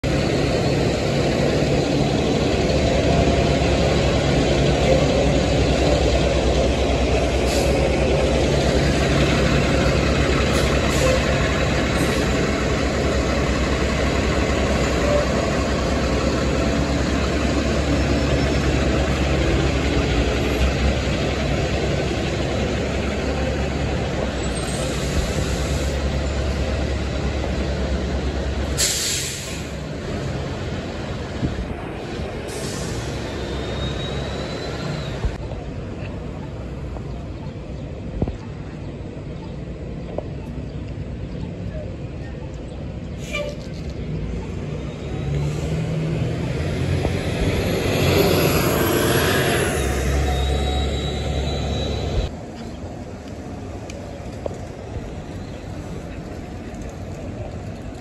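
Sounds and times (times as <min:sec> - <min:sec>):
bus engines idling: 0:00.0 - 0:58.0
short hiss: 0:28.8 - 0:29.8.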